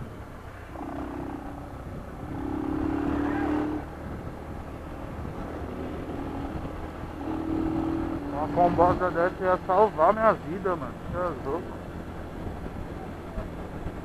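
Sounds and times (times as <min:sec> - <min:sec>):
wind and road rumble: 0:00.0 - 0:14.0
small motorcycle engine revving: 0:00.7 - 0:04.2, 0:05.5 - 0:08.9.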